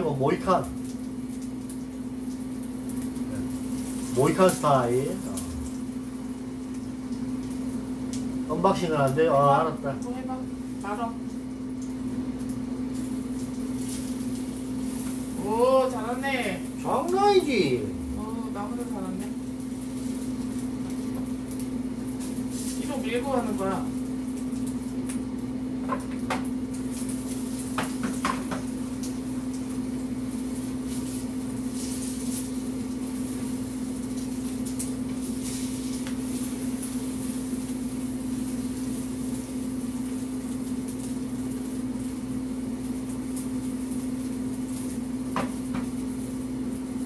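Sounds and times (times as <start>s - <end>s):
machine hum: 0.0s - 31.9s.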